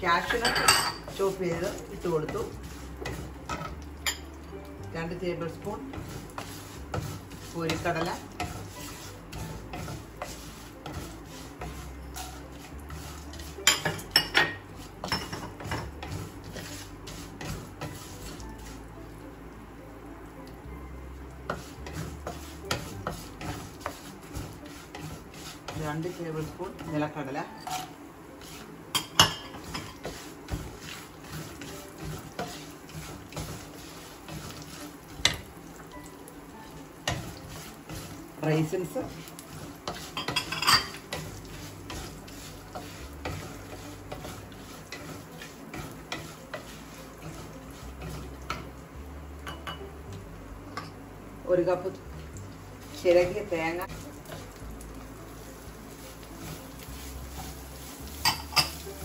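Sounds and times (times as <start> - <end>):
spoon clinking and scraping pan: 0.0 - 4.4, 5.5 - 18.8, 21.5 - 48.8, 49.4 - 49.9, 55.4 - 59.0
spoon clinking against pan: 0.2 - 1.2, 40.2 - 41.1.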